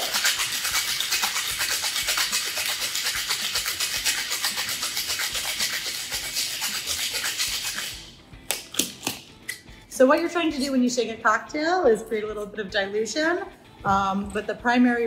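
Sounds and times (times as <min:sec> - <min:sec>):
ice rattling in cocktail shaker: 0:00.0 - 0:08.1.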